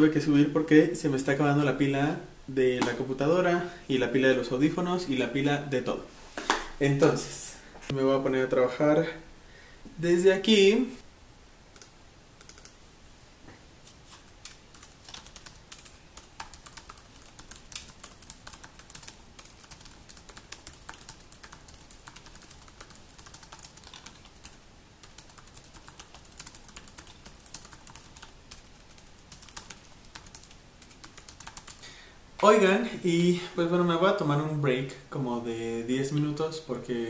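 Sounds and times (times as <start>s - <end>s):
fast typing on laptop keyboard: 12.4s - 12.7s, 14.5s - 31.8s.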